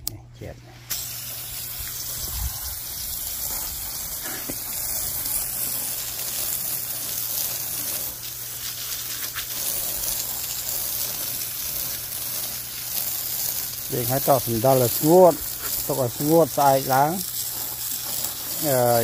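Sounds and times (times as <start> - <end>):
hose water jet spraying: 0.8 - 19.0.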